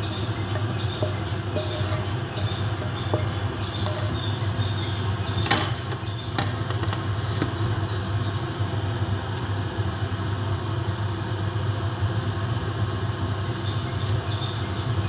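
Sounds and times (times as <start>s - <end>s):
utensil clinking and scraping on pan: 0.0s - 6.9s
steady low hum: 0.0s - 15.0s.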